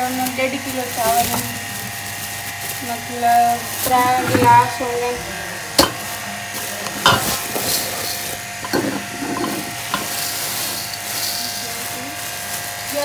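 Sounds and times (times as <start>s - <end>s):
plastic bag of rice crinkling: 0.0s - 4.9s, 6.0s - 13.0s
steady electrical hum: 0.0s - 13.0s
rice grains shifting: 6.0s - 13.0s.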